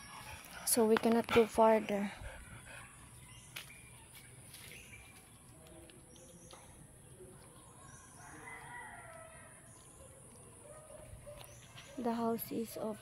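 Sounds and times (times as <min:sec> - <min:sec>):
rooster crowing faintly: 0:07.8 - 0:09.8.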